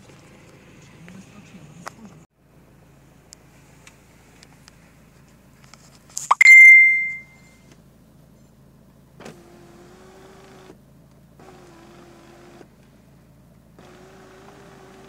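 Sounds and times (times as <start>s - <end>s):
sharp ding: 6.3s - 7.4s.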